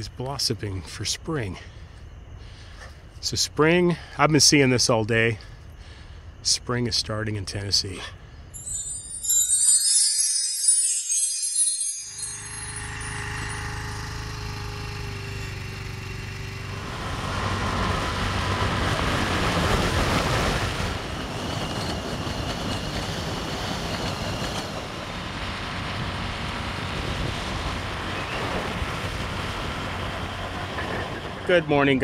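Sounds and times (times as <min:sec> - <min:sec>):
motor scooter engine hum: 0:12.1 - 0:31.9
rushing wind noise: 0:16.8 - 0:31.8.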